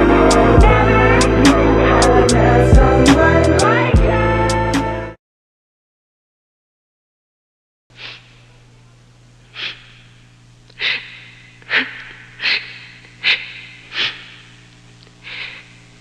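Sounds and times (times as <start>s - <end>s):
steady low hum: 0.0s - 4.2s, 7.9s - 16.0s.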